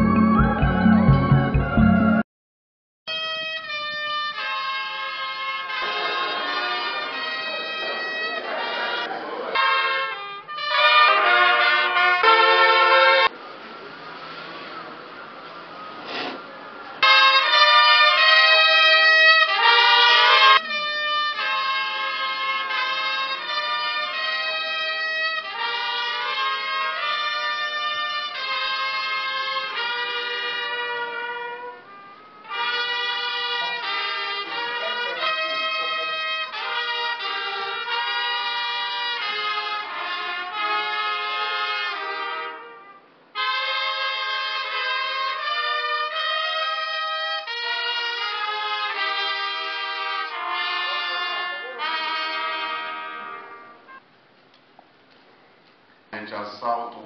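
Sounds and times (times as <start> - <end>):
brass band playing slow tune: 0.0 - 2.2, 3.1 - 13.4, 16.1 - 54.0.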